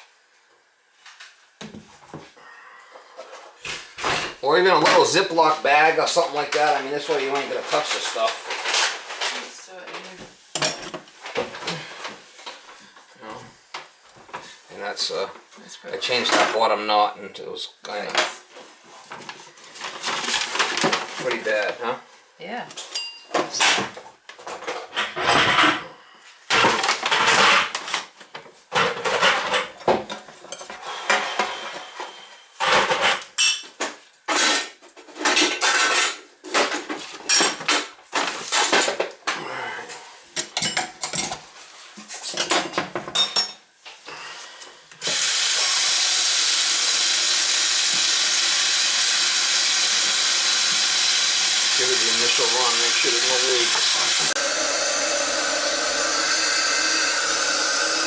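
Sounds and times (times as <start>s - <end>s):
metal parts clattering in a sink: 34.3s - 39.1s
water running down a drain: 45.0s - 58.0s.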